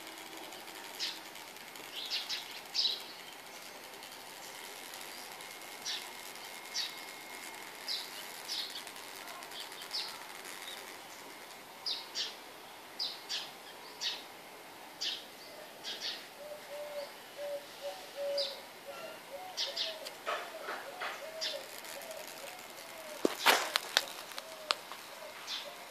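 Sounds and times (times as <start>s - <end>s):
small birds chirping: 0.1s - 12.4s, 13.0s - 14.3s, 15.0s - 25.9s
low cooing call: 16.4s - 23.2s.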